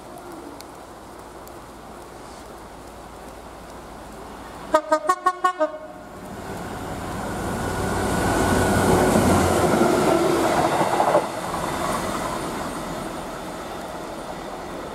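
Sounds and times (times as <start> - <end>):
diesel freight train passing: 4.5 - 14.9
train wagons rolling: 6.5 - 14.9.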